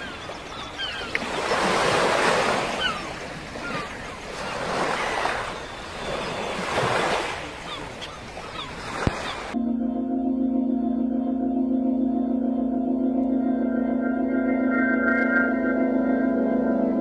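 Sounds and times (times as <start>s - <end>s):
gull cries: 0.0s - 9.6s
sea waves washing in: 0.0s - 9.6s.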